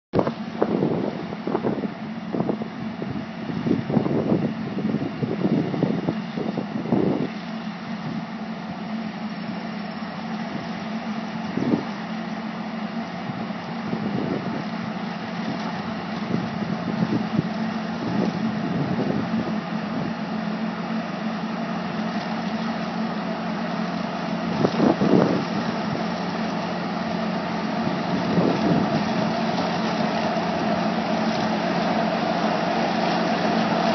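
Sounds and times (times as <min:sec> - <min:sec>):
tractor engine hum: 0:00.1 - 0:33.9
wind buffeting microphone: 0:00.2 - 0:07.4, 0:11.4 - 0:12.0, 0:13.2 - 0:20.4, 0:24.4 - 0:33.9.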